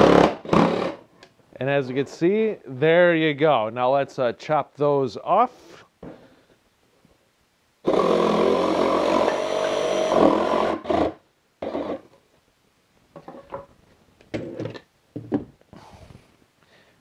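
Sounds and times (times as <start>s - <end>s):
jigsaw sawing through wood: 0.0s - 1.0s, 7.8s - 12.0s.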